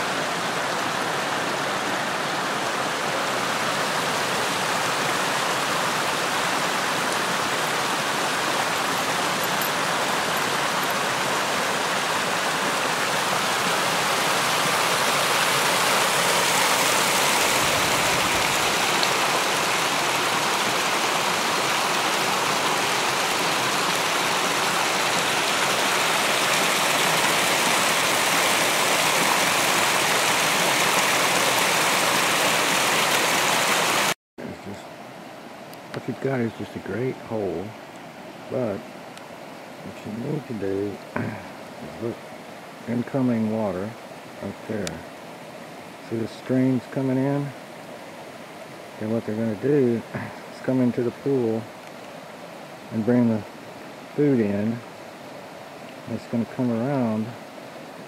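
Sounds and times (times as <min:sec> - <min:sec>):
stream water rushing over rock: 0:00.0 - 0:58.0.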